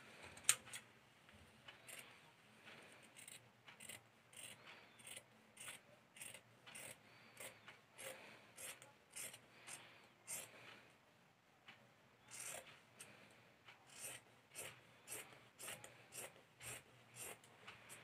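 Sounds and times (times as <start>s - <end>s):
scissors snipping fabric: 3.2s - 10.5s, 13.9s - 18.0s.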